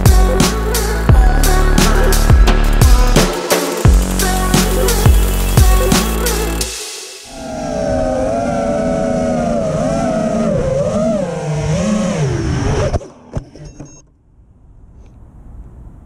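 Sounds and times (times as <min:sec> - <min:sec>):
drone motors whining: 0:01.2 - 0:06.7, 0:07.3 - 0:14.1.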